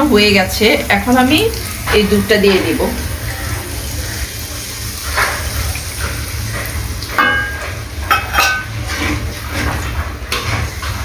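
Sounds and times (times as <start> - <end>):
curry sizzling in a pot: 0.0 - 11.0
metal spatula knocking a pot: 7.2 - 8.7.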